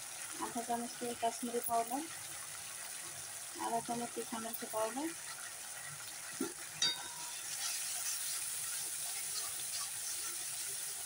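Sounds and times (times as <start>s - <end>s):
spices sizzling in oil: 0.0s - 11.0s
sharp metallic clink: 6.8s - 7.3s
spatula scraping pan: 6.9s - 10.7s.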